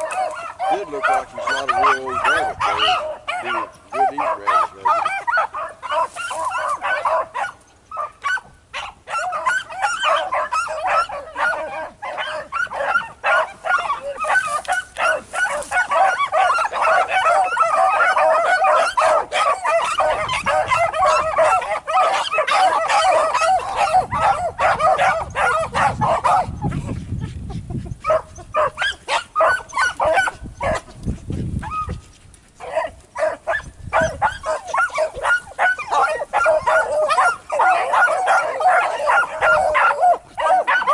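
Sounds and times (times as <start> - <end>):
dog baying and barking: 0.0 - 27.0, 27.9 - 31.0, 31.6 - 32.0, 32.6 - 40.9.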